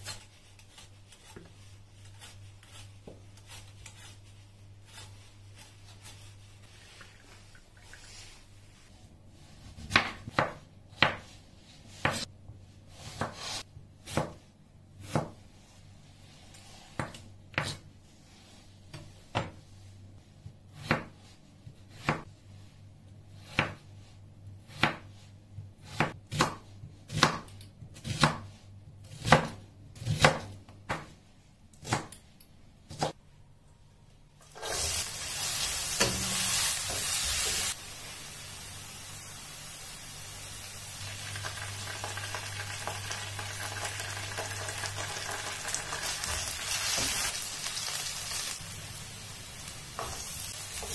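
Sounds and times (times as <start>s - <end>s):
knife chopping on wooden board: 25.9s - 28.4s
onions sizzling in oil: 34.4s - 50.9s.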